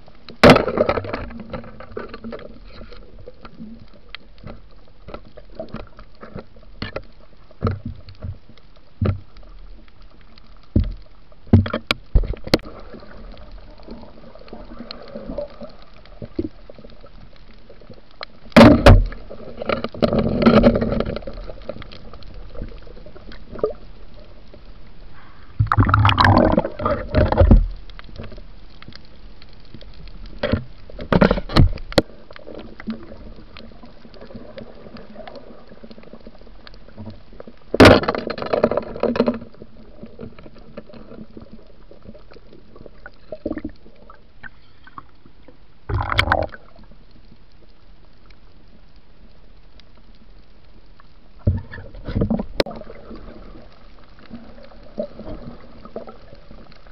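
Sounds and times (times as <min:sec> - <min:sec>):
low hiss: 0:00.0 - 0:56.9
underwater clicks and knocks: 0:00.2 - 0:24.3, 0:25.6 - 0:47.2, 0:51.0 - 0:53.4
bubbling gurgling water: 0:12.1 - 0:24.4, 0:25.5 - 0:28.2, 0:30.9 - 0:37.9, 0:38.8 - 0:47.1, 0:51.3 - 0:56.9.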